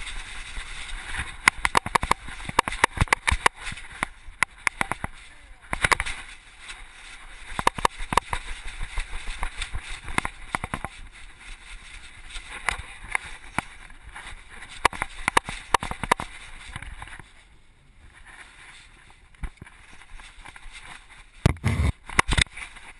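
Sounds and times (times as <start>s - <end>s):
rustling hiss: 0.0s - 22.9s
camera knocking and rattling: 1.4s - 6.2s, 7.5s - 11.0s, 14.8s - 17.2s, 21.4s - 22.6s.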